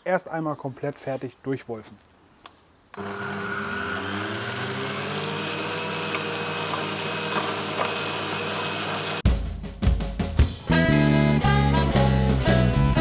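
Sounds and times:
meat grinder motor hum: 3.0s - 9.2s.

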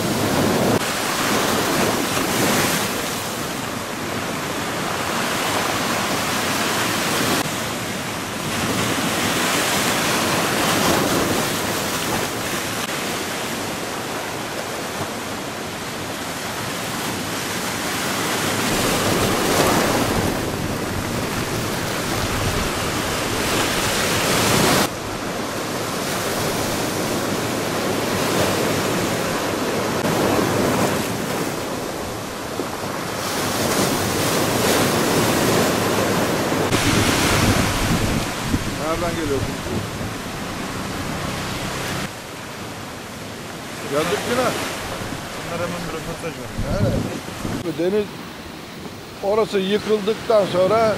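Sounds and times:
waves breaking over rocks: 0.0s - 50.9s
wind buffeting microphone: 18.0s - 42.1s, 44.7s - 47.7s.

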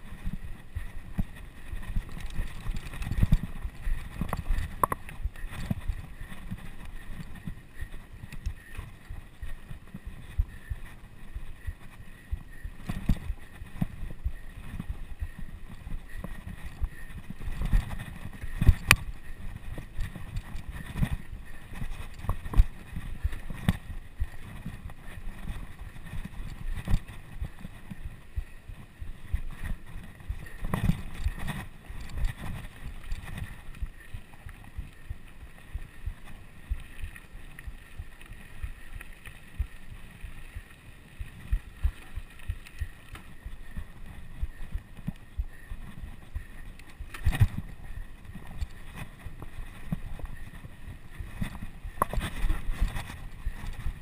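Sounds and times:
wind buffeting microphone: 0.0s - 36.9s
bicycle riding rumble: 0.0s - 54.0s.

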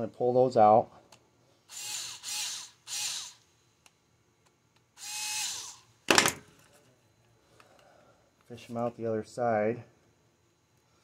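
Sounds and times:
power drill whirring: 1.7s - 3.4s, 5.0s - 5.9s.

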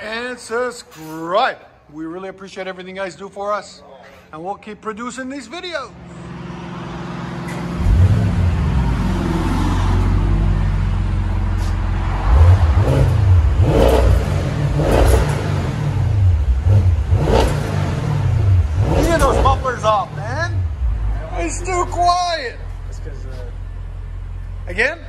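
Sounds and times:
car exhaust revving: 5.9s - 25.0s.

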